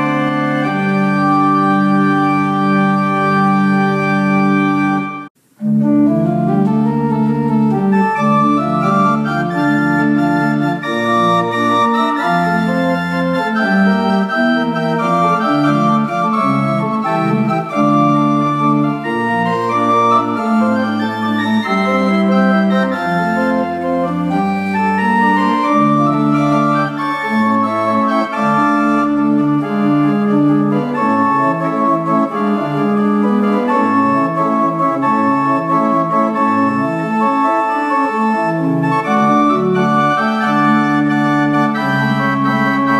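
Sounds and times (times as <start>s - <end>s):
pipe organ chords: 0.0s - 42.9s.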